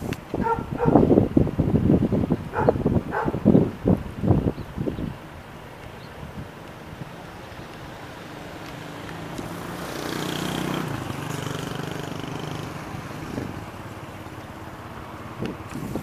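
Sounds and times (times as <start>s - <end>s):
engine droning: 6.7s - 16.0s.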